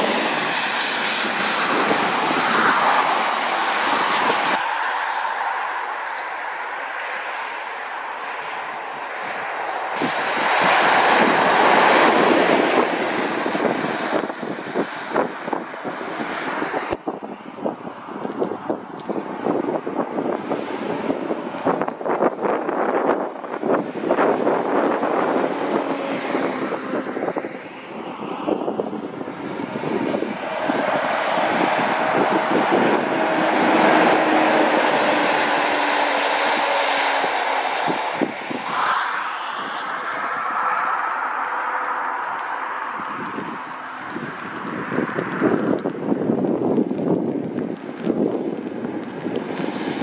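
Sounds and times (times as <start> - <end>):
tyre noise on a wet road: 0.0 - 50.0
wind buffeting microphone: 0.0 - 50.0
lorry engine passing: 23.8 - 44.9
tyre hiss on wet road: 33.3 - 43.0.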